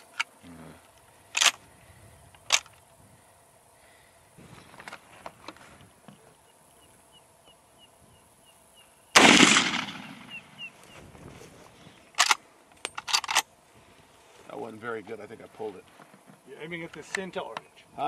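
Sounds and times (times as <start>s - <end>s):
rifle action metallic clicks: 1.3s - 1.6s, 12.2s - 13.5s
rifle shot: 9.2s - 10.6s.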